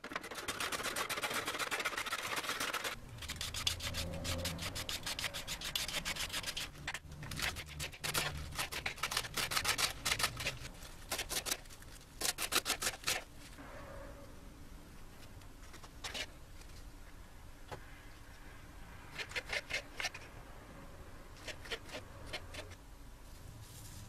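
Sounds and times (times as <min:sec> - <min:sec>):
carrot grating on metal grater: 0:00.0 - 0:13.3, 0:19.1 - 0:20.2, 0:21.4 - 0:22.8.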